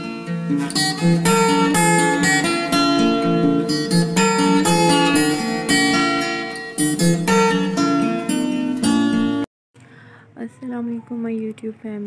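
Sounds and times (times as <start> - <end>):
acoustic guitar strumming: 0.0 - 9.5.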